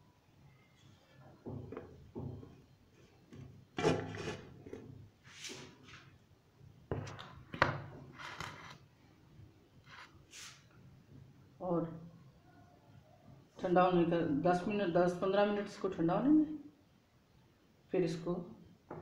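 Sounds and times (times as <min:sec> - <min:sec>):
metal knocking and scraping metal: 0:03.3 - 0:05.0.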